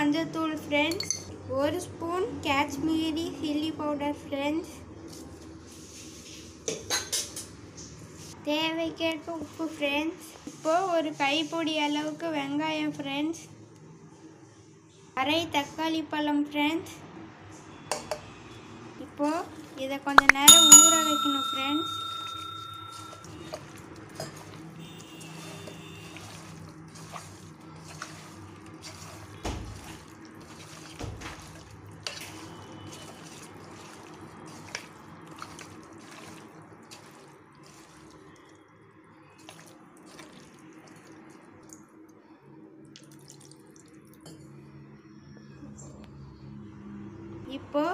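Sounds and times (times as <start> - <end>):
wet squishing of raw chicken: 23.6 - 42.1, 42.8 - 44.3.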